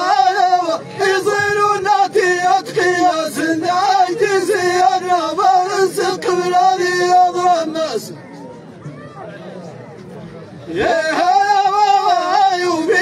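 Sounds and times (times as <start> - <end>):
men chanting in unison: 0.0 - 8.2, 10.7 - 13.0.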